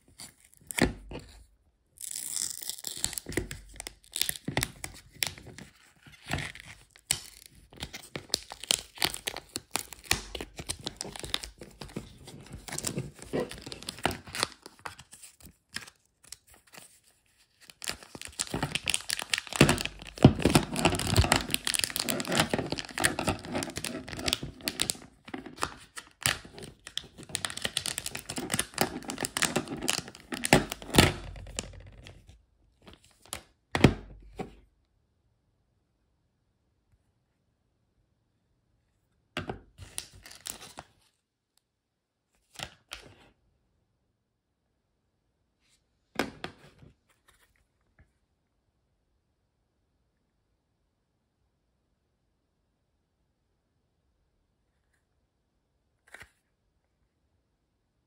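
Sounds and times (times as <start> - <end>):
plastic wrap crackling and tearing: 2.0 - 31.8, 39.8 - 40.9.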